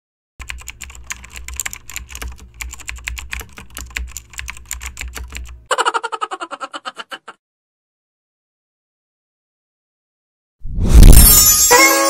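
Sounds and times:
computer keyboard typing: 0:00.4 - 0:05.7.

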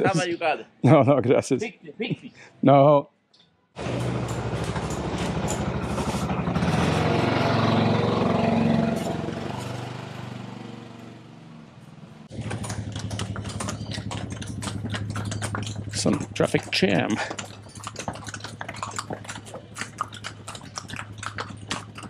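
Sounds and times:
small engine running steadily: 0:03.8 - 0:22.0
small vehicle engine passing: 0:03.8 - 0:22.0.

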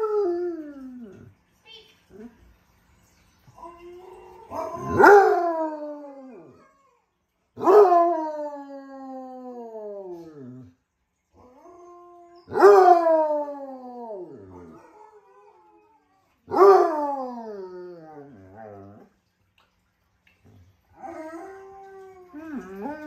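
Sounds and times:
dog howling: 0:03.6 - 0:06.9, 0:21.0 - 0:23.0.

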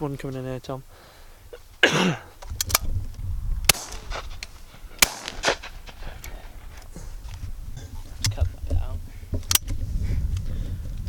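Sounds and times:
faint sharp cracks: 0:03.6 - 0:06.9
shotgun shots: 0:03.7 - 0:06.0.

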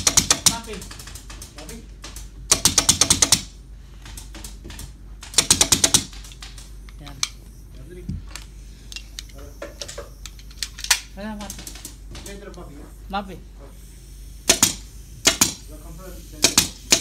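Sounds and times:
pneumatic staple gun firing: 0:14.4 - 0:15.7, 0:16.4 - 0:17.0.

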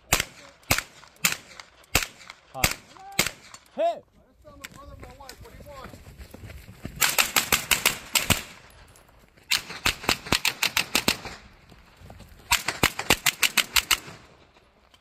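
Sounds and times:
carbine gunshots: 0:00.0 - 0:03.8, 0:07.0 - 0:08.7, 0:09.5 - 0:11.4, 0:12.5 - 0:14.4.

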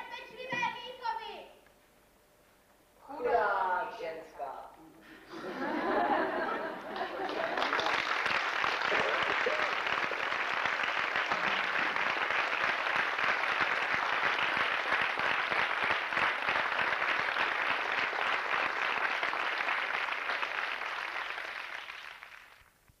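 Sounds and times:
audience applauding: 0:05.5 - 0:22.7.

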